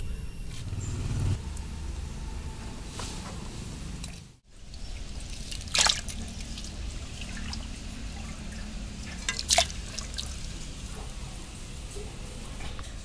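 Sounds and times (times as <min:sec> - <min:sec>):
water splashing in a metal bowl: 0:04.0 - 0:11.0
loud splashes: 0:04.8 - 0:10.5.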